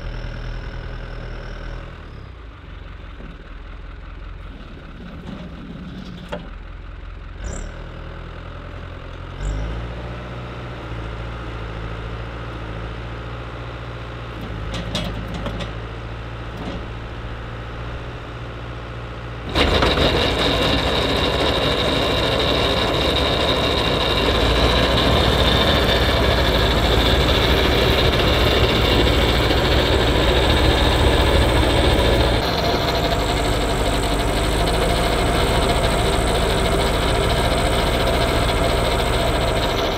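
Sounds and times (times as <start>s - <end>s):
tractor diesel engine idling: 0.0s - 9.6s, 10.7s - 39.9s
snowblower whining: 14.3s - 39.9s.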